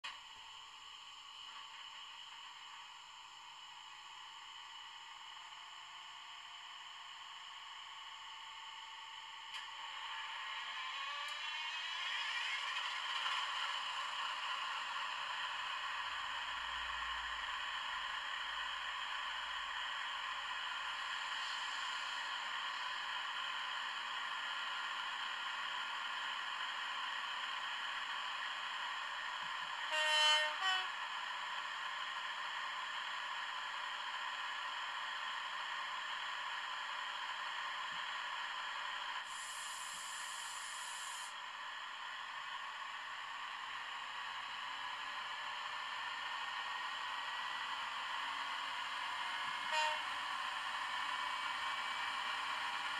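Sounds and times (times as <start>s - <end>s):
diesel locomotive engine running: 0.0s - 52.9s
horn blast: 29.9s - 30.9s, 49.7s - 50.2s
high hiss: 39.3s - 41.3s.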